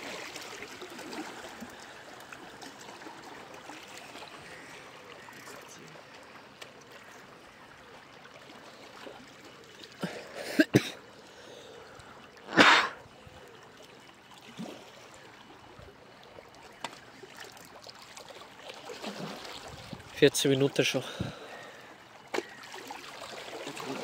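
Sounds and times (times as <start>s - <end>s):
small waves lapping on rocks: 0.0s - 11.3s, 16.5s - 24.0s
person clearing throat: 10.0s - 11.0s, 12.5s - 13.0s
person coughing: 10.0s - 11.0s, 12.5s - 13.0s.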